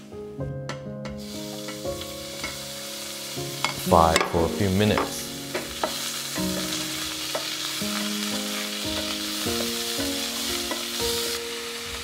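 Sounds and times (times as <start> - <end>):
steak sizzling in a pan: 1.0 - 12.0.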